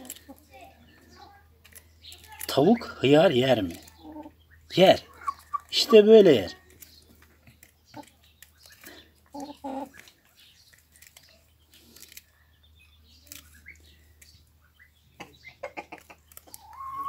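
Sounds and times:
beaks tapping and tearing: 0:00.0 - 0:04.4, 0:05.0 - 0:16.9
hen calls: 0:16.5 - 0:17.0.

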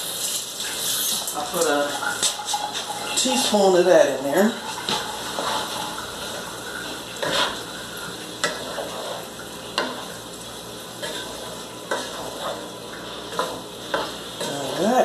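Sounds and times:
vegetables sizzling in a pan: 0:00.0 - 0:15.0
wooden spoon scraping a pan: 0:04.5 - 0:07.7, 0:08.4 - 0:10.1, 0:11.0 - 0:15.0.

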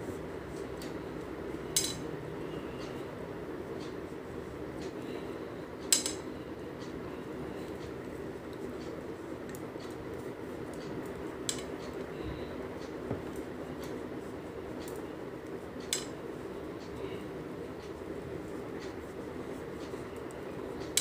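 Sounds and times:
steady low hum: 0:00.0 - 0:21.0
metal knitting needles clicking: 0:05.8 - 0:06.2, 0:14.8 - 0:16.2.

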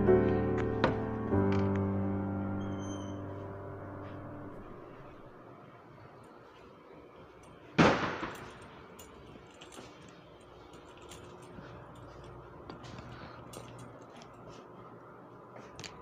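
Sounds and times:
loud sharp bang: 0:07.8 - 0:08.4.

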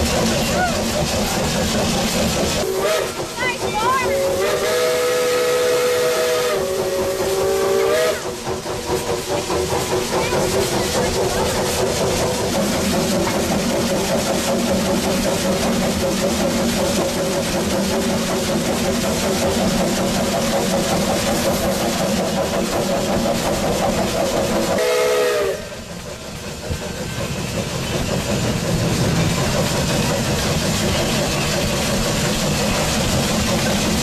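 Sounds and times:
locomotive running rumble: 0:00.0 - 0:34.0
steam hiss: 0:00.0 - 0:34.0
steam locomotive whistle: 0:02.6 - 0:03.3, 0:03.9 - 0:08.4, 0:24.7 - 0:25.8.

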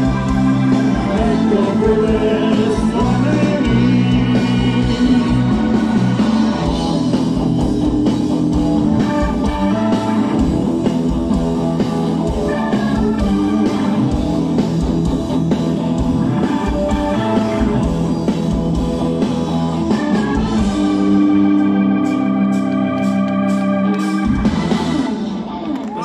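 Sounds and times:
drum kit: 0:00.0 - 0:26.0
electric guitar: 0:00.0 - 0:26.0.

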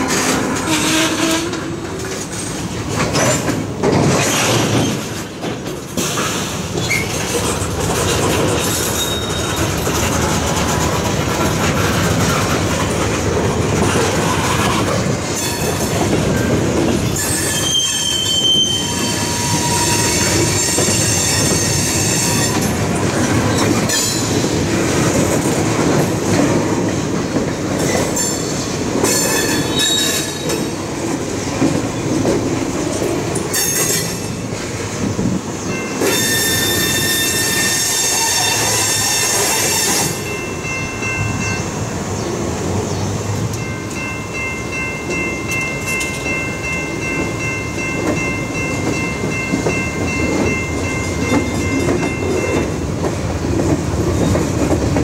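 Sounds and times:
train wheels clacking on rails: 0:00.0 - 0:55.0
high wheel squeals: 0:08.8 - 0:09.9, 0:17.1 - 0:22.7, 0:29.1 - 0:30.5, 0:35.6 - 0:40.4.

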